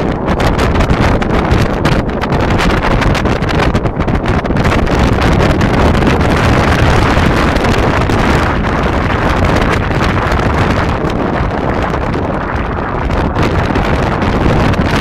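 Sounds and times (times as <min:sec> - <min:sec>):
road noise: 0:00.0 - 0:15.0
wind rushing over microphone: 0:00.0 - 0:15.0.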